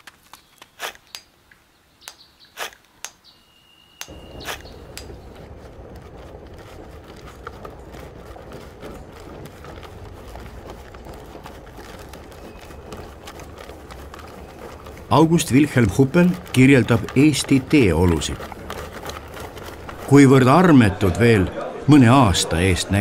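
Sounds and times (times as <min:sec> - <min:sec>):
rumbling clatter with clicks: 0:04.0 - 0:21.2.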